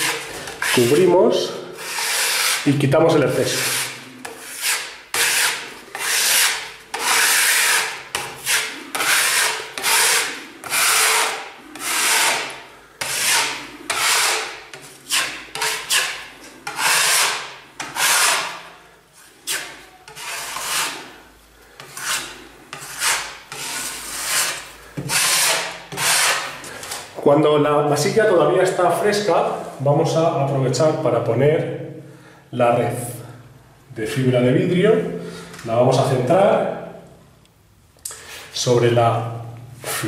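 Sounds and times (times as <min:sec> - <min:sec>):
putty knife scraping filler on wall: 0:00.0 - 0:01.2, 0:01.8 - 0:18.7, 0:19.4 - 0:21.2, 0:21.8 - 0:27.0.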